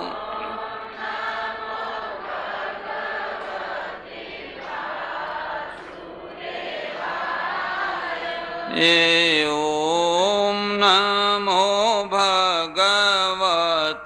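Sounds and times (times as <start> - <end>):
man singing held note: 0.0 - 0.6, 8.7 - 14.0
crowd chanting in unison: 0.0 - 14.0.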